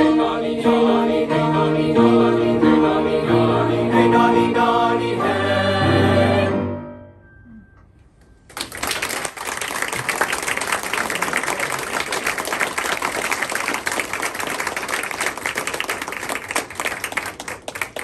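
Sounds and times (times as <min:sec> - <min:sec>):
audience applauding: 0:08.5 - 0:18.0.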